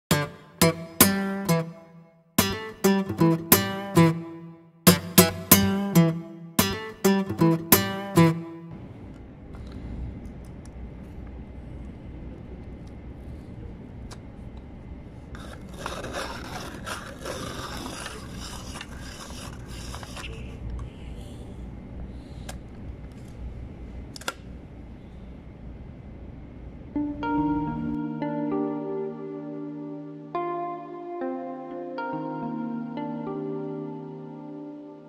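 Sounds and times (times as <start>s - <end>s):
pencil sharpener grinding: 15.4s - 20.5s.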